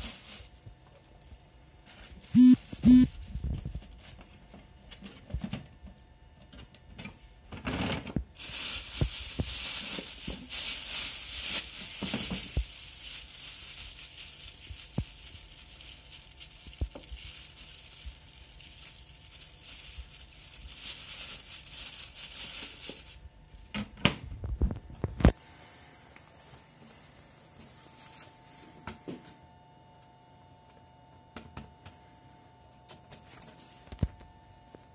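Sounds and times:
plastic bag film rustling: 0:00.0 - 0:01.2, 0:01.8 - 0:05.0, 0:08.3 - 0:23.7.

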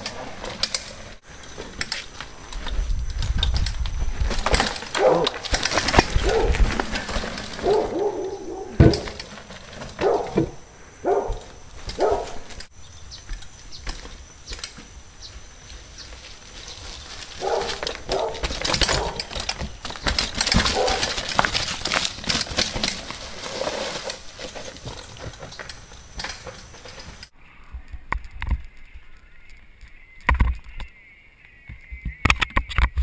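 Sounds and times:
bike tyres crunching over gravel: 0:00.0 - 0:33.0.

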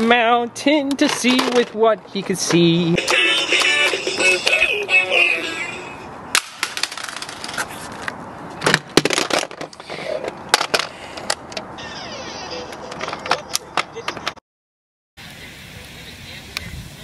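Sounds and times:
plastic toys knocking and clattering: 0:00.8 - 0:04.0, 0:06.4 - 0:07.6, 0:08.6 - 0:11.6, 0:12.8 - 0:14.4
person singing: 0:02.8 - 0:06.0.

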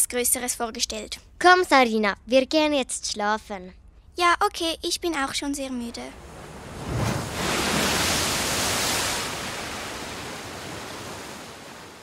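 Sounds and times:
sea waves rushing: 0:06.1 - 0:12.0.

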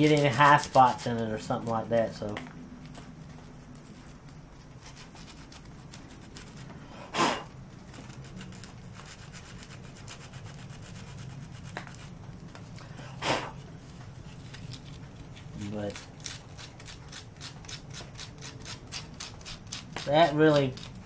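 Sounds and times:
sandpaper rubbing by hand: 0:00.0 - 0:01.6, 0:08.0 - 0:12.2.

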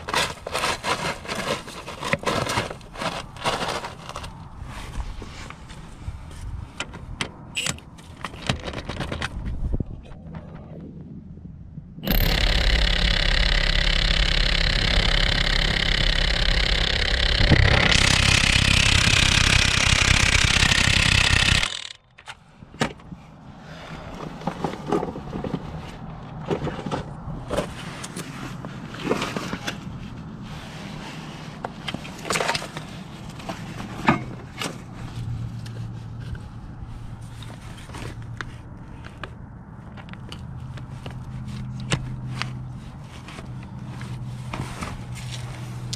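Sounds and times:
impact wrench hammering: 0:12.0 - 0:22.0.

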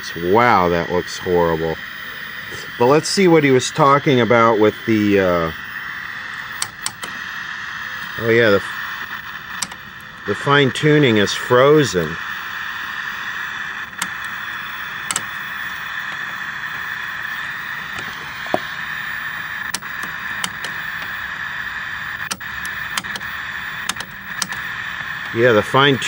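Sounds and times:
television static hiss: 0:00.0 - 0:26.0
tuner knob clicks: 0:06.6 - 0:07.1, 0:15.0 - 0:15.3, 0:19.7 - 0:21.1, 0:22.3 - 0:25.4.

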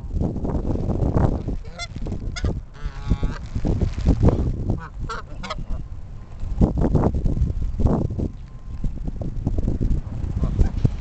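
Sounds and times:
low rumbling noise: 0:00.0 - 0:11.0
geese honking: 0:01.7 - 0:03.4, 0:04.8 - 0:05.9.

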